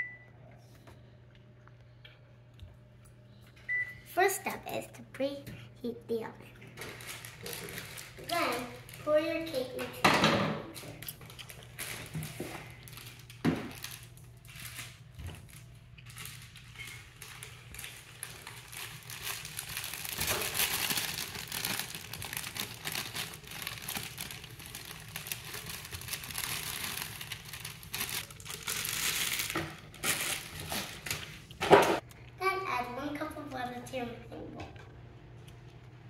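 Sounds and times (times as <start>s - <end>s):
plastic bag crinkling: 6.7s - 9.8s, 10.9s - 31.6s.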